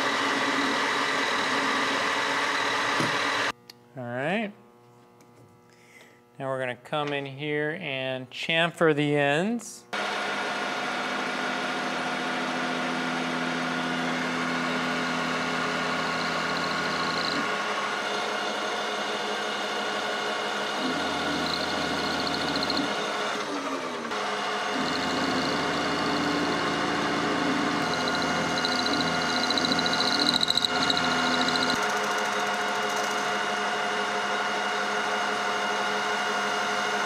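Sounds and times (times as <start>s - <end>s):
metal lathe whining: 12.4s - 37.0s.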